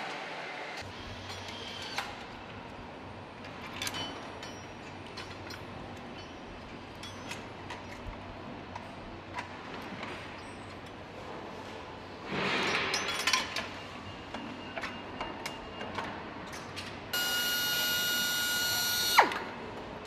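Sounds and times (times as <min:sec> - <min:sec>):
light metallic clicks and clinks: 0:03.4 - 0:08.0.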